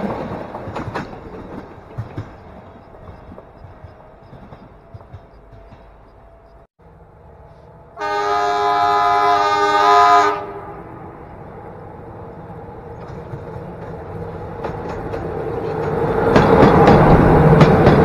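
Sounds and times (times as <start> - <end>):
train rumble: 0.0 - 18.0
locomotive horn blast: 8.0 - 10.9.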